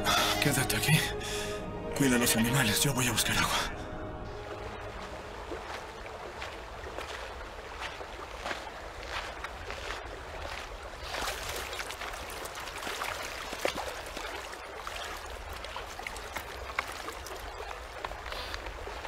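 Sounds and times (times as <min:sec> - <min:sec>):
water sloshing and lapping: 0:04.2 - 0:19.0
footsteps on pebbles: 0:05.2 - 0:14.4.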